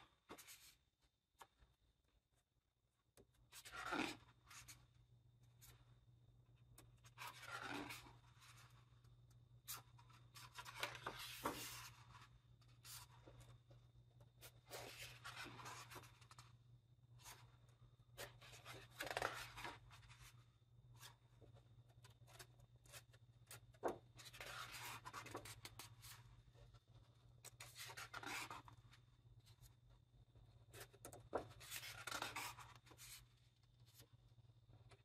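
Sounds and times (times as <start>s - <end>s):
book pages turning: 9.7s - 13.6s, 30.8s - 33.3s.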